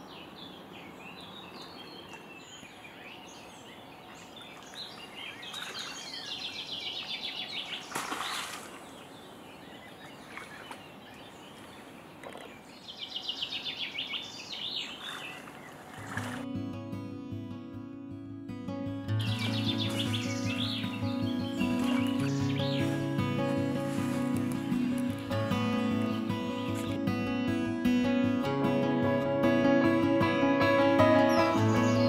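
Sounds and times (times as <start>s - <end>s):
songbirds chirping: 0.0s - 16.5s, 19.0s - 28.2s, 30.8s - 32.0s
steady outdoor hiss: 0.0s - 17.4s, 18.8s - 32.0s
fish splashing in water: 7.8s - 9.0s, 14.8s - 16.4s.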